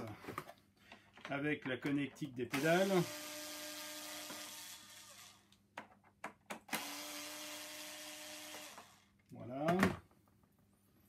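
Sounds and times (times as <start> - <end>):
electric screwdriver motor whine: 2.6 - 5.4, 6.7 - 9.0.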